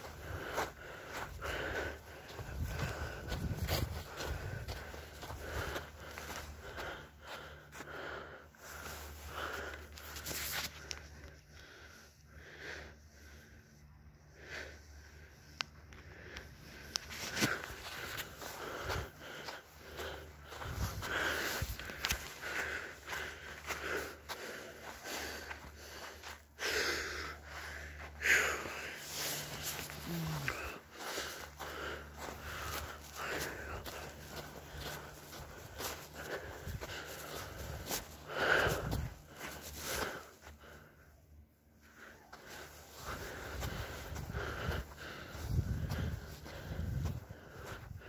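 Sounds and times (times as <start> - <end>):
steady low hum: 0.0 - 48.0
quick sniffing breaths: 16.4 - 40.9.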